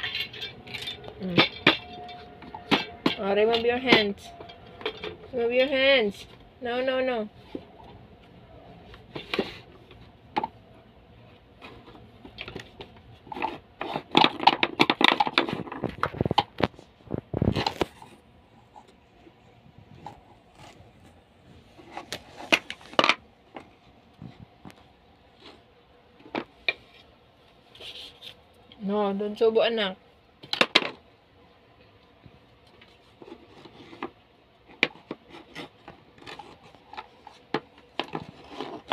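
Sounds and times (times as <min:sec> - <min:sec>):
wooden beads clacking on wire: 0:00.0 - 0:05.8.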